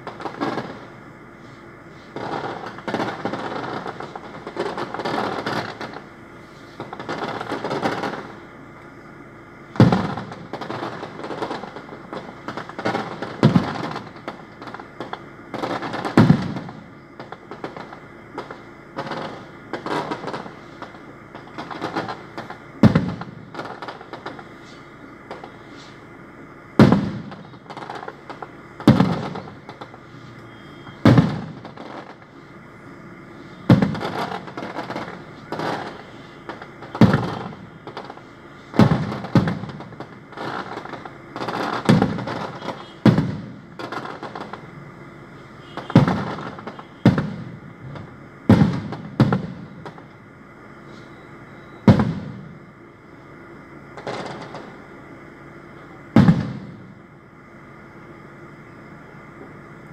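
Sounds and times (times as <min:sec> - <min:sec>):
small firework pops: 0:00.0 - 0:01.0, 0:02.1 - 0:09.0, 0:09.7 - 0:26.2, 0:26.8 - 0:32.4, 0:33.6 - 0:44.7, 0:45.6 - 0:50.2, 0:51.8 - 0:52.6, 0:53.9 - 0:54.8, 0:55.8 - 0:56.9
fireworks bursting with bangs: 0:00.0 - 0:59.9.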